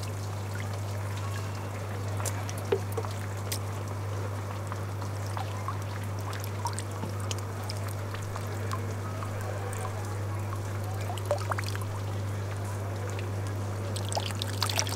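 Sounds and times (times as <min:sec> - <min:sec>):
water trickling and dripping: 0:00.0 - 0:14.9.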